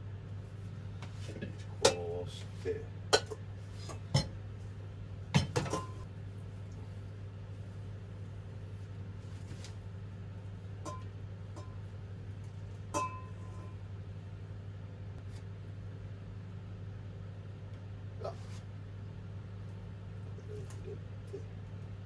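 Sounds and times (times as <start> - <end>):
steady low hum: 0.0 - 22.0
steel bowls and sieve clinking: 3.1 - 4.4, 5.4 - 6.1, 10.7 - 12.0, 12.8 - 13.8.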